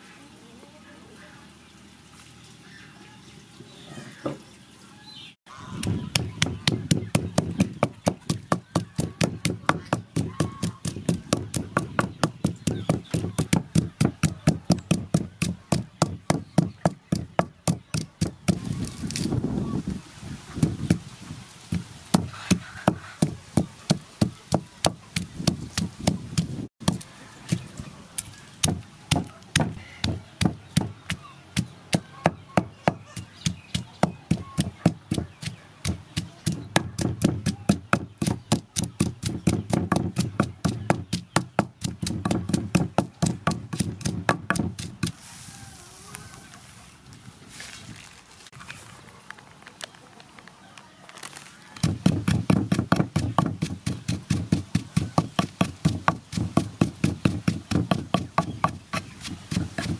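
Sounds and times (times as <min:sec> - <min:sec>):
pestle pounding in wooden mortar: 0:05.5 - 0:18.8, 0:20.6 - 0:21.1, 0:21.7 - 0:45.2, 0:51.8 - 0:59.9.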